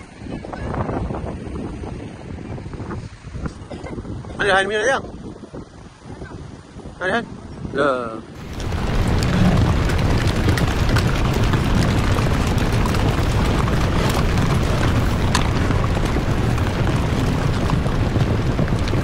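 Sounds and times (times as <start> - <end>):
heavy rain pouring: 8.4 - 19.0
sharp raindrop hits: 8.4 - 19.0.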